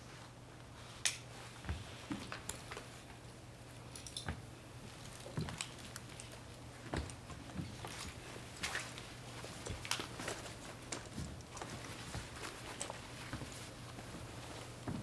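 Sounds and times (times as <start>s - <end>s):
clicks and rustles of gear handling: 3.8s - 15.0s.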